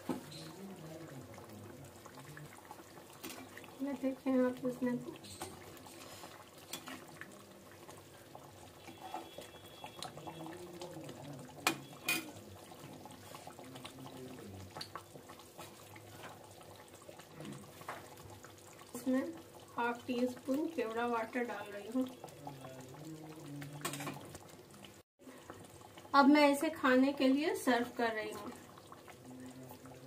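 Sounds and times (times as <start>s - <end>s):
gravy bubbling in a pan: 0.0s - 30.0s
spoon stirring gravy: 5.0s - 20.7s.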